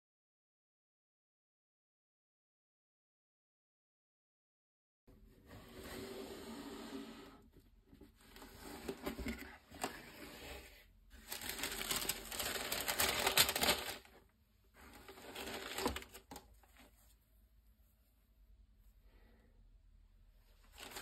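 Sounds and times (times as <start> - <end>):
tissue paper rustling and crinkling: 11.2 - 14.2, 14.8 - 17.1, 20.6 - 21.0.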